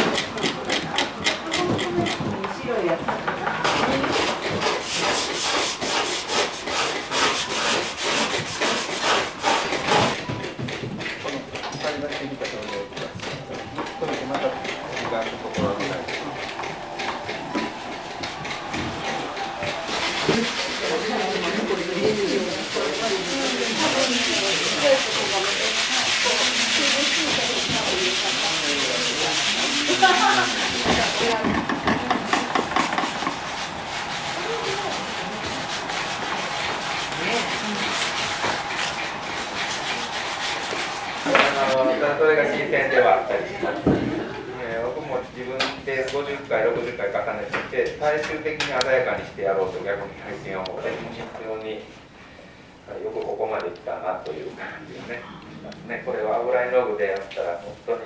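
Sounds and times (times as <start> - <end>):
tool scraping painted panel: 0.0 - 41.8.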